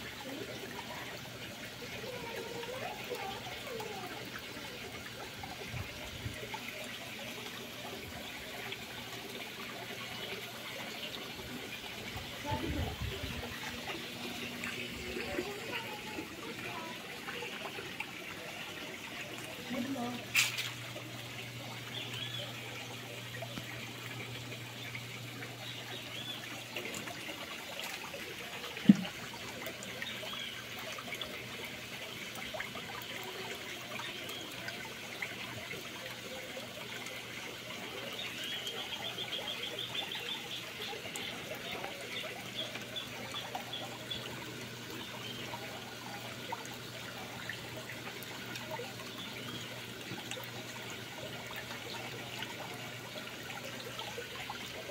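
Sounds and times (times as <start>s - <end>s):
water trickling: 0.0s - 54.9s.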